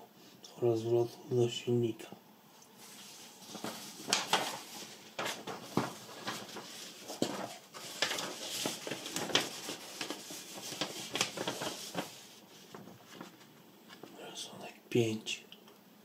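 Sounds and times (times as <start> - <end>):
paper rustling and crinkling: 2.8 - 14.2.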